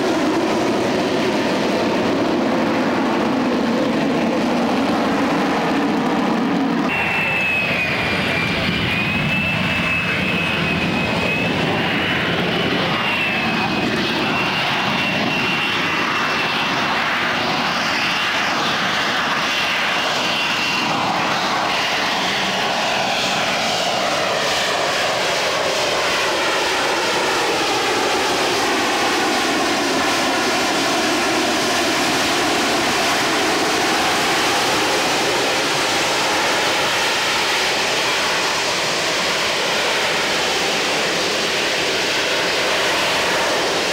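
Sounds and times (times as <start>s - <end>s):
jet engine roar: 0.0s - 43.9s
high whine: 5.0s - 24.3s.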